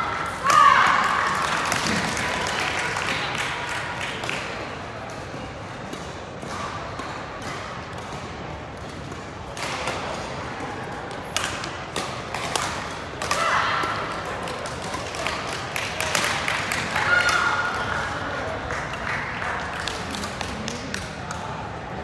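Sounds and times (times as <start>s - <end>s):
distant voices in a hall: 0.0s - 22.0s
rackets hitting shuttlecock: 5.1s - 17.4s.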